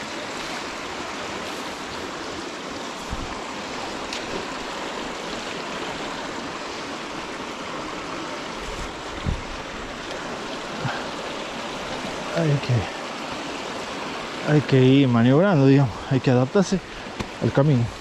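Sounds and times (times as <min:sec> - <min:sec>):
stream rushing over rocks: 0:00.0 - 0:18.0
dull low thumps: 0:03.0 - 0:03.6, 0:08.8 - 0:09.8.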